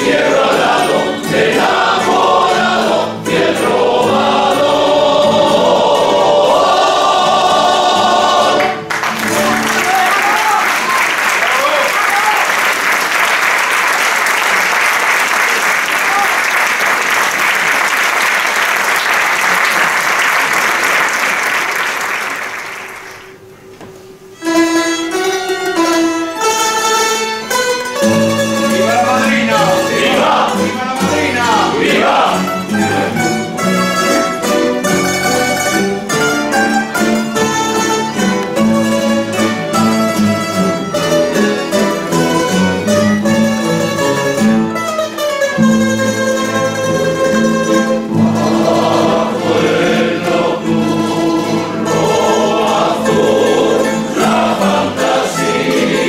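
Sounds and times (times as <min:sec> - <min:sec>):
plucked string ensemble playing: 0:00.0 - 0:11.6, 0:24.3 - 0:56.0
applause: 0:08.6 - 0:23.4.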